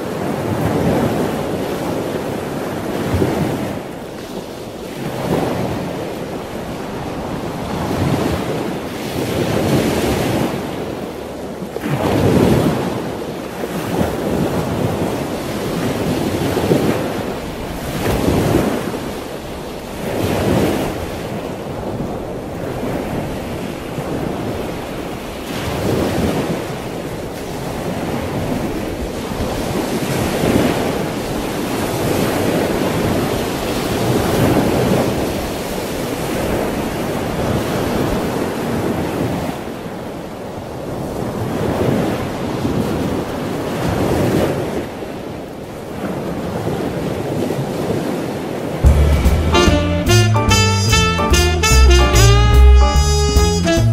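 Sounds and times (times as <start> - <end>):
choppy waves: 0.0 - 49.7.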